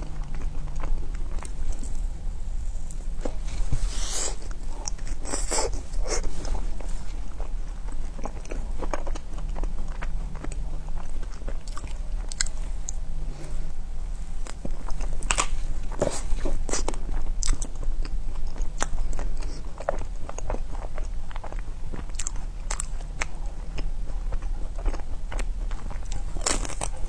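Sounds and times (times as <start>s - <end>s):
chewing: 0.0s - 27.0s.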